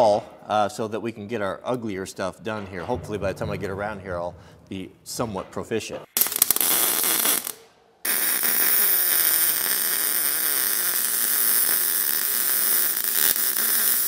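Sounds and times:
welding arc crackling and hissing: 0:06.2 - 0:14.0.

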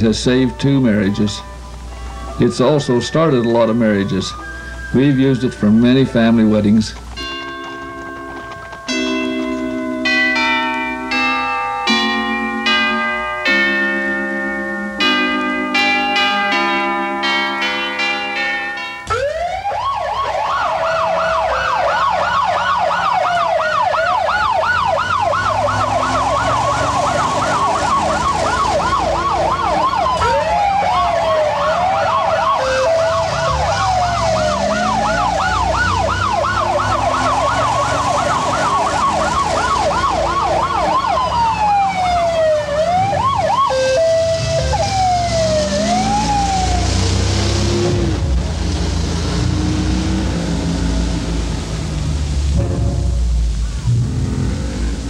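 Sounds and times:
fire truck siren: 0:00.0 - 0:55.0
truck engine running: 0:19.1 - 0:55.0.

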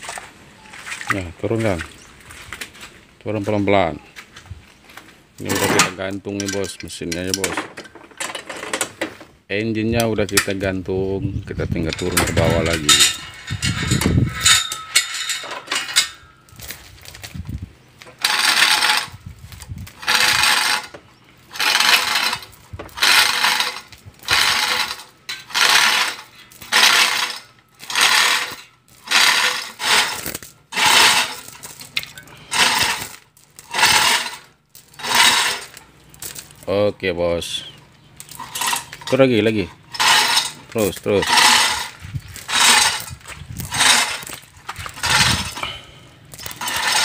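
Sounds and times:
hoist chain rattling: 0:11.9 - 0:16.8, 0:18.1 - 0:19.2, 0:19.9 - 0:36.6, 0:38.2 - 0:47.0.

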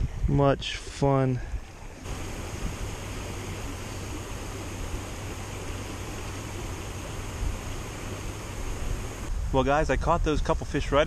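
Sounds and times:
stream flowing over rocks: 0:01.9 - 0:09.3.

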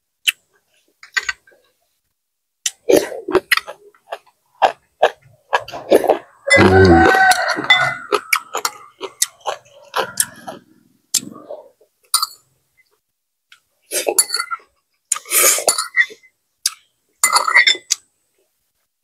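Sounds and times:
person chewing: 0:02.6 - 0:11.9, 0:13.5 - 0:16.9.

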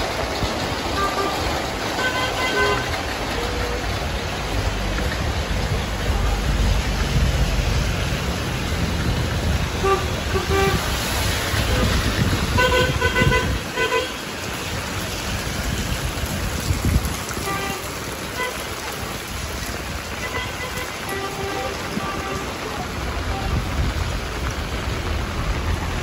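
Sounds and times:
tyres hissing on wet road: 0:00.0 - 0:26.0
vehicle engines running: 0:00.0 - 0:26.0
car horn tooting: 0:01.0 - 0:03.6, 0:09.8 - 0:11.1, 0:11.7 - 0:14.2, 0:17.4 - 0:18.9, 0:20.2 - 0:23.7.

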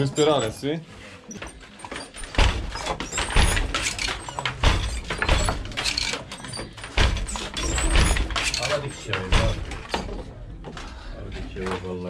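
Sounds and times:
wooden loom knocking: 0:02.0 - 0:10.2.

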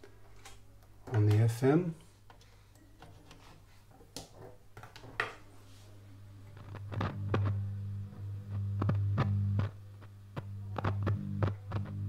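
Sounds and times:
radio loudspeaker mains hum: 0:05.7 - 0:12.0
radio clicks and crackles: 0:06.5 - 0:12.0.

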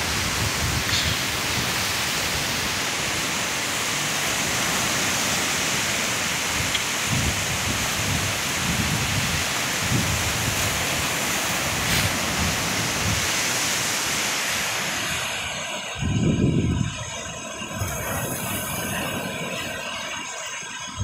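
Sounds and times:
wind buffeting microphone: 0:00.0 - 0:02.9, 0:06.4 - 0:13.5, 0:15.9 - 0:19.8
sea surf breaking on beach: 0:00.0 - 0:20.9.

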